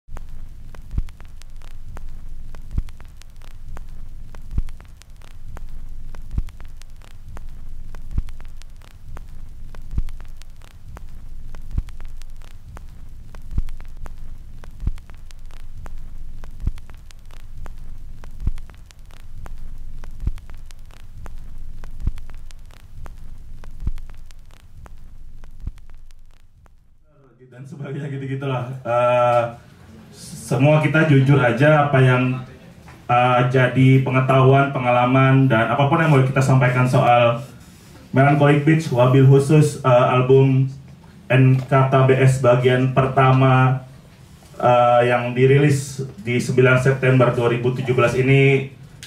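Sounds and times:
crackling static: 0.0 - 49.0
low hum: 0.0 - 49.0
low repeating thump: 0.1 - 27.1.

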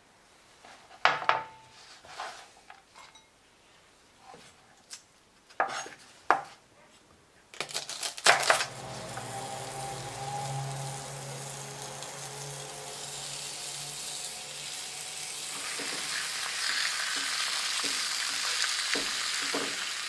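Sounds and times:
meat searing in a skillet: 8.4 - 20.0.

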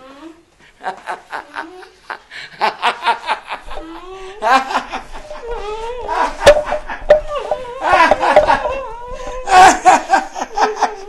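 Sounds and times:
man laughing: 2.6 - 11.0.

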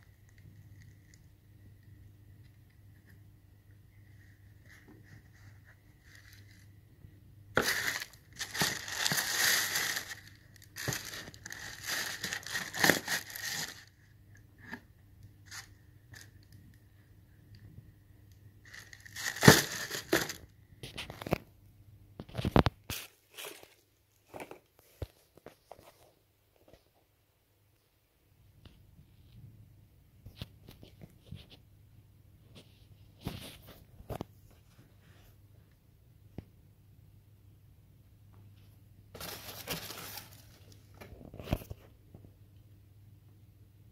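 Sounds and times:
tissue paper rustling: 4.7 - 6.6, 7.6 - 14.0, 18.6 - 20.4, 22.9 - 23.8, 39.2 - 40.7.

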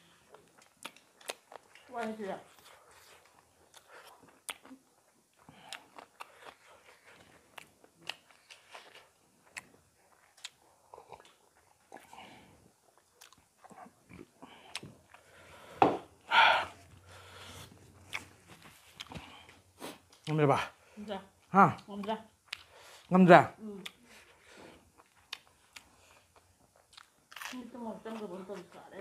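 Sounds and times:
chewing and lip smacks: 0.3 - 1.9, 2.5 - 12.1, 12.9 - 15.4, 17.7 - 20.4, 24.9 - 27.5.

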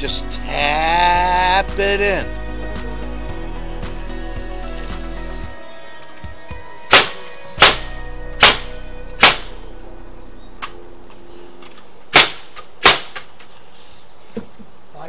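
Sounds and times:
soft background music: 0.0 - 13.3
hammer strikes: 6.9 - 9.9.

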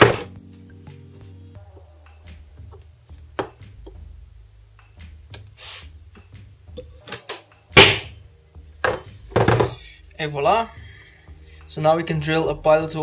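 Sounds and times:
hammer striking punch: 7.8 - 8.2.

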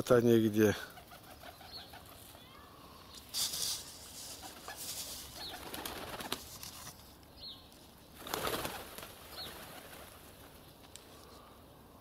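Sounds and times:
small bird chirps: 1.3 - 3.3.

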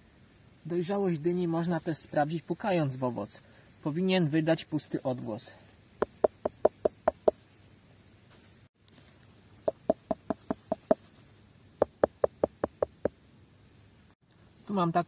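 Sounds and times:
hand knocking on pumpkins: 6.0 - 7.4, 9.7 - 11.0, 11.8 - 13.2.

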